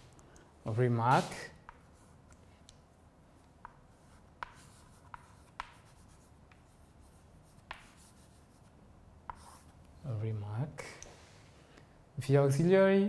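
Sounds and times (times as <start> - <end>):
chalk scratching on blackboard: 1.1 - 2.2, 3.6 - 9.8
chalk tapping on board: 1.2 - 2.0, 3.6 - 9.7.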